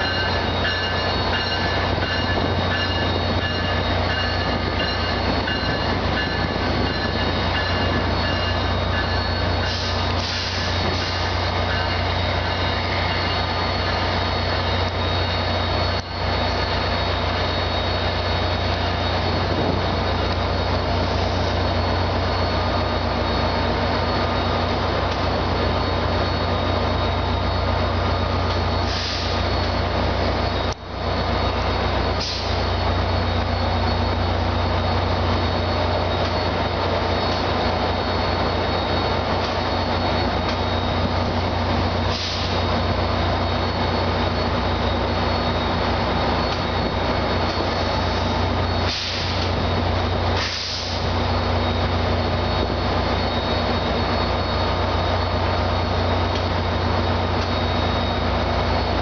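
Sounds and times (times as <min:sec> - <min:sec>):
whining tones: 0:00.0 - 0:30.8
diesel locomotives idling: 0:00.0 - 0:59.0.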